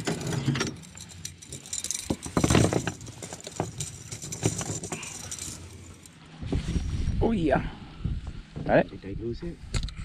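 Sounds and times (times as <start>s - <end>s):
metal chain clinking and rattling: 0.0s - 6.2s.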